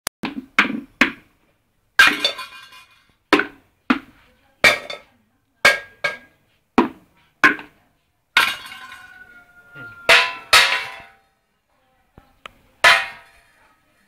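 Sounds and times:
stick hitting tin can drums: 0:02.0 - 0:05.1, 0:08.4 - 0:09.2, 0:10.0 - 0:11.2, 0:12.8 - 0:13.6.

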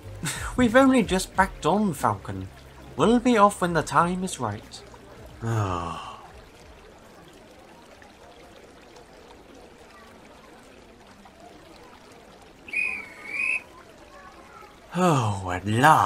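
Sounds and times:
short high whistle blast: 0:12.7 - 0:13.6.

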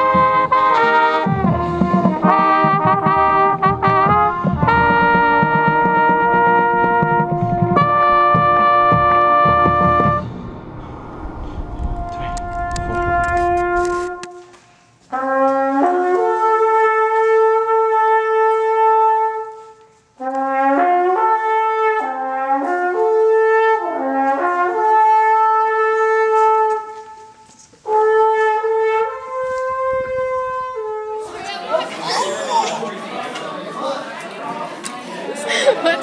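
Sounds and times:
solo trumpet melody: 0:00.0 - 0:10.4, 0:12.0 - 0:31.5
horn notes: 0:00.0 - 0:19.6, 0:20.2 - 0:33.0
rushing noise: 0:09.1 - 0:14.2.

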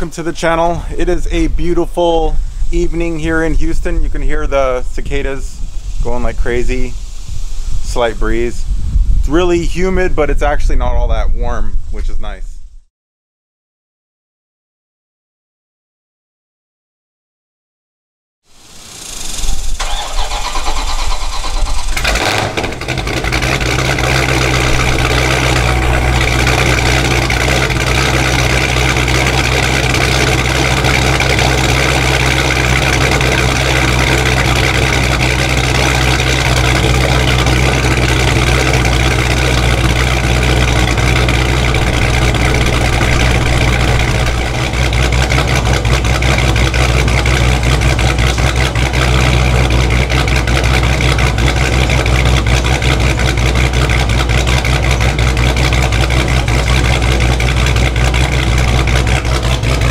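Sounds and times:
car engine idling: 0:19.0 - 0:59.9.

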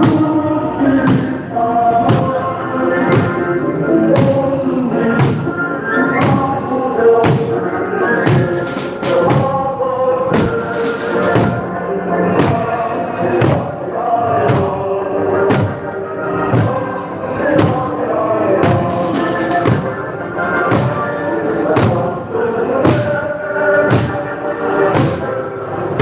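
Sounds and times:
many voices singing: 0:00.0 - 0:26.0
barrel drums beating: 0:07.2 - 0:07.6, 0:10.3 - 0:11.7, 0:13.4 - 0:13.8, 0:15.5 - 0:15.8, 0:16.5 - 0:16.9, 0:18.6 - 0:20.0, 0:20.7 - 0:21.1, 0:21.7 - 0:22.0, 0:22.8 - 0:23.1, 0:23.9 - 0:24.2, 0:24.9 - 0:25.3.

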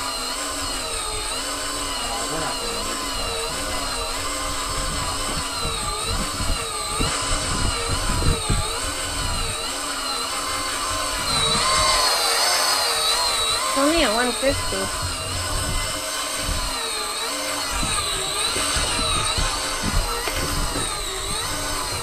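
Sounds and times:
fishing reel motor whining: 0:00.0 - 0:22.0
low rumbles and thumps: 0:03.2 - 0:09.6, 0:13.3 - 0:22.0.

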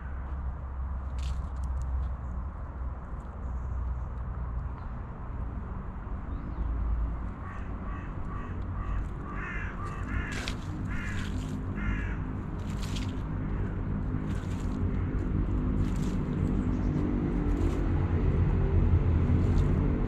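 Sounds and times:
steady low rumble: 0:00.0 - 0:20.0
crow cawing: 0:07.4 - 0:15.2.

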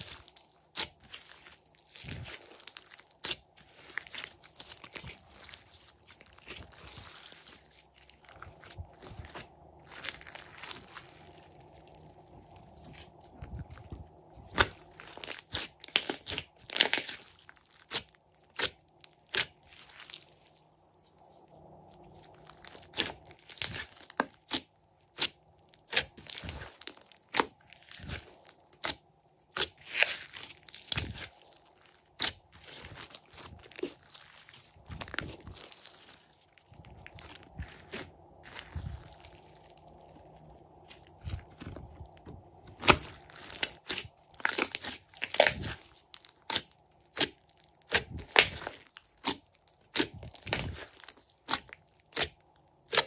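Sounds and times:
slime squeezed with sticky pops: 0:40.9 - 0:53.0.

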